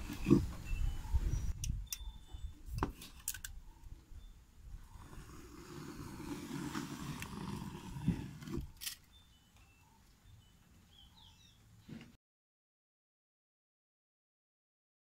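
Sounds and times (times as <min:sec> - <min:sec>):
handling noise rubbing: 0:04.9 - 0:09.1.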